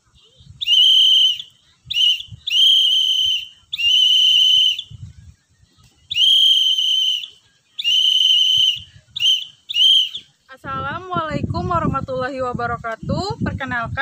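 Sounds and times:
whistle blasts: 0.6s - 5.0s, 6.1s - 10.4s.

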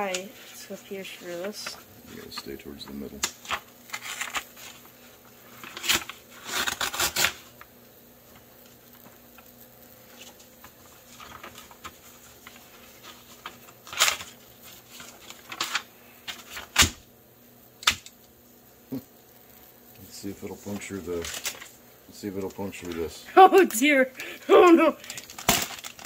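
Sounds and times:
paper rustling and crinkling: 0.0s - 17.0s, 20.2s - 26.0s
paper tearing: 3.2s - 7.6s, 10.1s - 17.0s, 20.6s - 21.8s, 24.5s - 26.0s.

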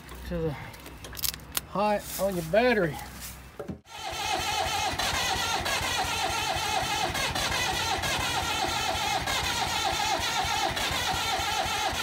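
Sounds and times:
forklift diesel engine running: 3.8s - 12.0s.

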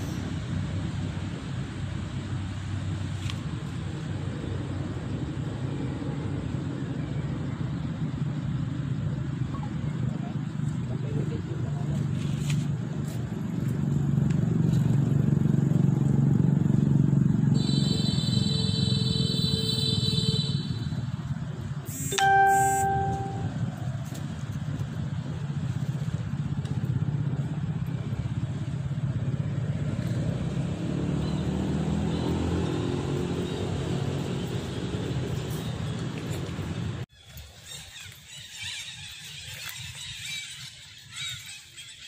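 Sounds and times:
high-pitched tone: 21.9s - 23.7s
short tone: 21.9s - 23.7s.

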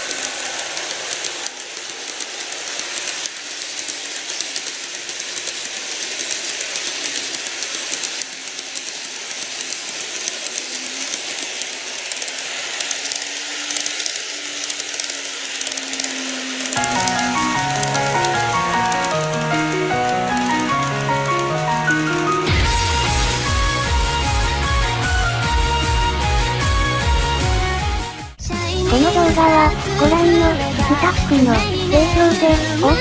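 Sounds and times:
faint low hum of model train: 0.0s - 22.2s
model train wheels rattling: 0.0s - 25.9s, 28.9s - 33.0s.

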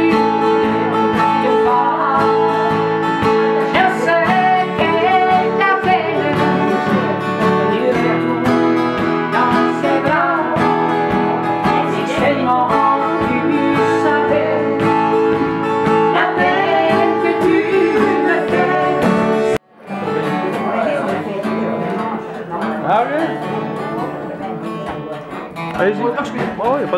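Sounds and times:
woman singing: 0.0s - 19.6s
acoustic guitars strummed: 0.0s - 26.9s.

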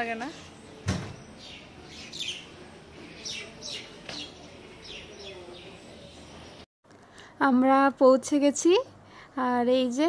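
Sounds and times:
small birds chirping: 0.0s - 6.6s.

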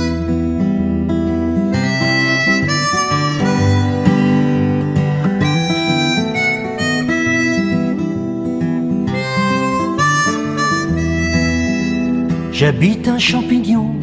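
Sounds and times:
harmonica melody: 0.0s - 13.0s
moving bass line: 2.7s - 8.0s.

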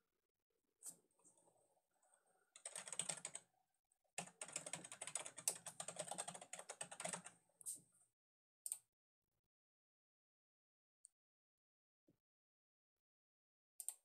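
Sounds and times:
typing on a computer keyboard: 2.6s - 3.4s, 4.2s - 7.4s.

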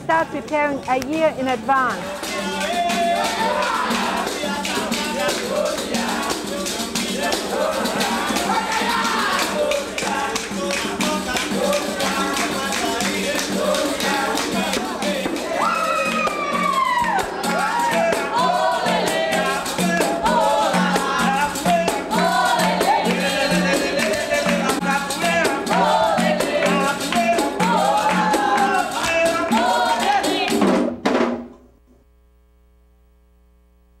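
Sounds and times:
steady percussion beat: 0.1s - 31.4s
faint steady hum: 31.5s - 34.0s.

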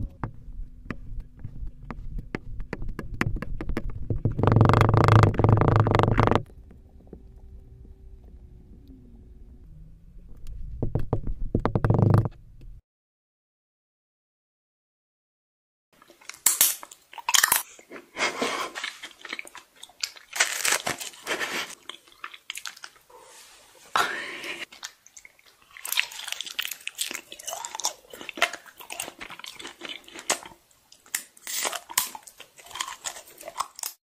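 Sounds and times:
chewing crunchy honeycomb: 18.6s - 23.1s, 24.7s - 34.0s.

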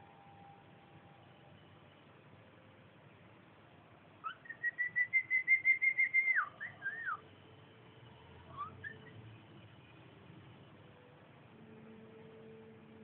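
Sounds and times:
cockatiel whistling: 4.2s - 7.2s, 8.5s - 9.2s
faint bird chirp: 4.2s - 7.3s, 8.4s - 10.0s.

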